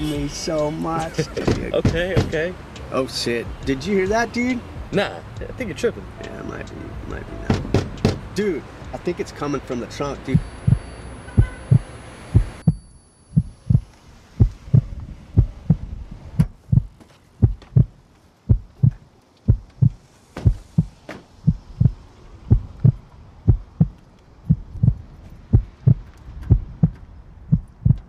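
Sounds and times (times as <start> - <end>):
heartbeat thumps: 10.2 - 12.8, 13.4 - 28.0.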